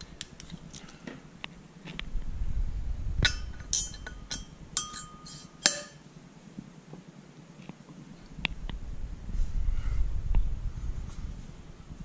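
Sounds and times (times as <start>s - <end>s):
metal valve clinking: 3.2s - 6.0s.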